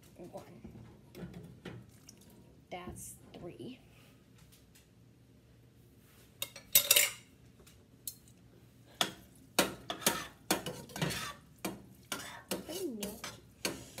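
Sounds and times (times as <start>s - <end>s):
spoon scraping metal pot: 9.6s - 14.0s.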